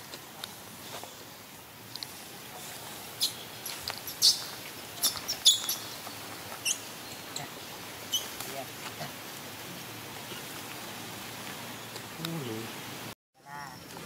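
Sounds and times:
baby monkey squeaking: 3.2s - 6.0s, 6.6s - 7.5s, 8.1s - 8.4s.

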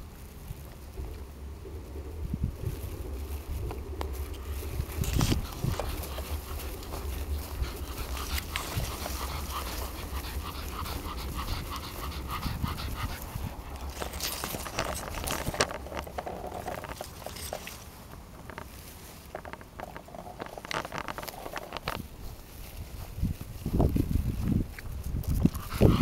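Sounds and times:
grass rustling against microphone: 0.0s - 26.0s
wind rumble on microphone: 0.0s - 26.0s
dog panting: 5.1s - 15.8s, 25.4s - 26.0s.

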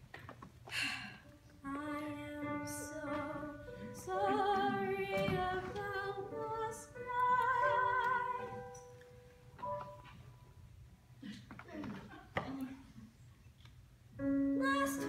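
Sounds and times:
woman singing with vibrato: 1.6s - 8.8s, 14.5s - 15.0s.

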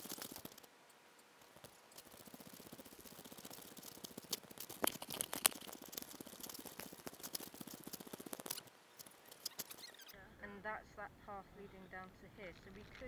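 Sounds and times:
rustling and pattering on microphone: 0.0s - 10.2s
sharp clicks: 1.4s - 10.0s.

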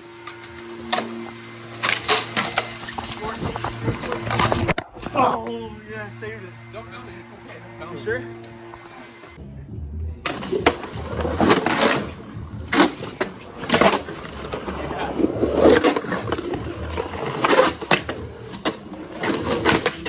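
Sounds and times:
skateboard rolling on concrete: 0.0s - 6.2s, 10.2s - 20.0s
skateboard clacks: 10.3s - 20.0s.

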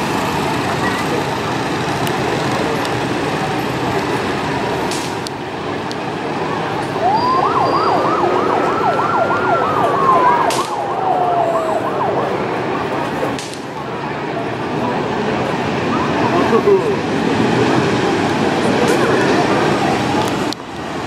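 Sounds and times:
motorcycles running: 0.0s - 20.7s
siren yelping: 6.9s - 13.4s, 15.8s - 16.8s
siren tone sliding downward: 7.0s - 13.3s.

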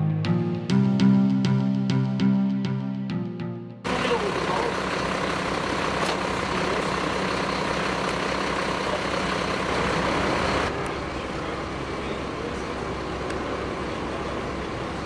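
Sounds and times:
vehicle engines idling in traffic: 3.9s - 15.0s.

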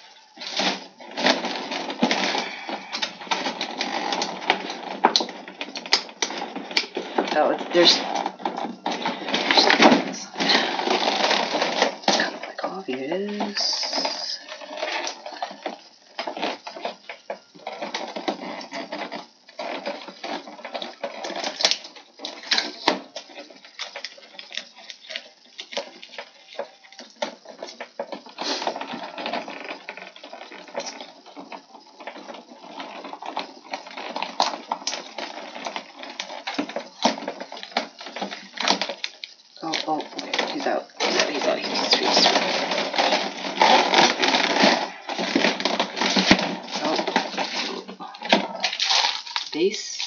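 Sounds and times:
plastic packaging crinkling: 0.0s - 50.0s.

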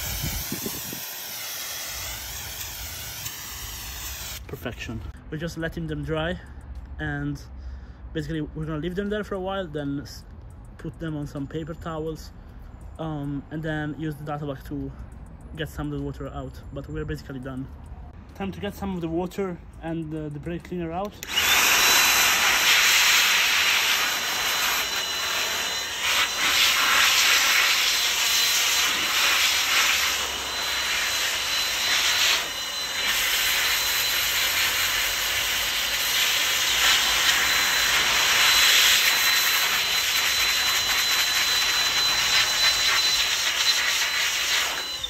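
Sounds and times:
electric air duster blowing: 0.0s - 4.5s, 21.1s - 45.0s.

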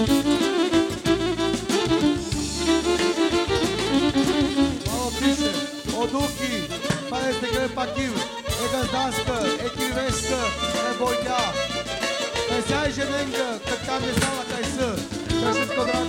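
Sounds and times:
live folk dance band: 0.0s - 16.0s
man singing into a microphone: 4.9s - 11.6s, 12.5s - 16.0s.

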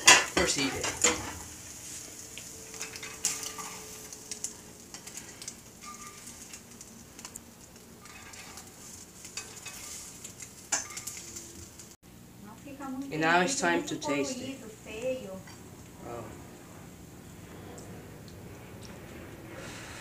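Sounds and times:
egg sizzling in frying pan: 0.0s - 12.0s
spatula scraping and tapping pan: 2.3s - 7.3s, 8.0s - 11.4s.

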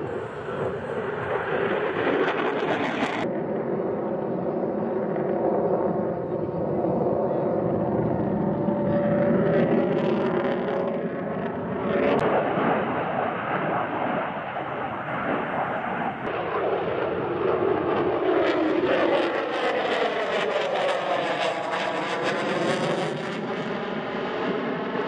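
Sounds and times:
jet engines roaring: 0.0s - 25.0s.

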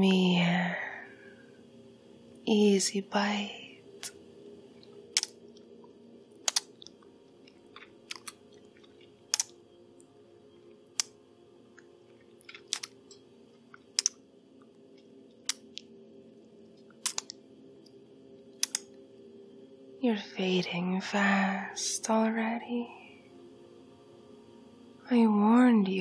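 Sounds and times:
faint low hum: 0.0s - 26.0s
wet mouth sucking and smacking: 7.7s - 9.5s.

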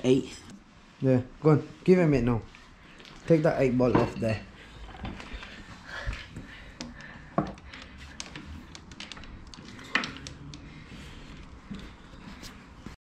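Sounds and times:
hand tools clicking and tapping: 5.0s - 12.4s.

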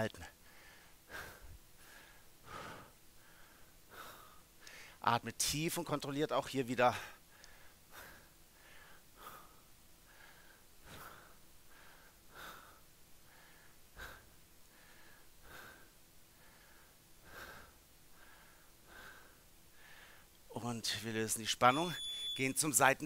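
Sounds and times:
man breathing deeply: 0.4s - 5.0s, 7.1s - 20.4s.

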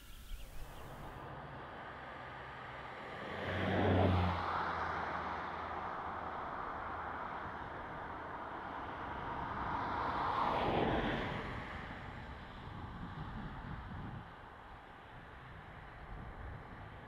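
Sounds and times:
steady outdoor noise: 0.0s - 17.0s
vehicle passing: 3.0s - 5.7s.

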